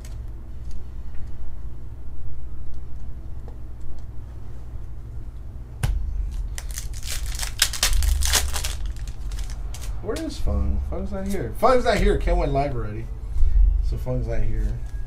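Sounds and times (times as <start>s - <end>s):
low steady rumble: 0.0s - 15.0s
foil wrapper crinkling: 6.3s - 10.0s.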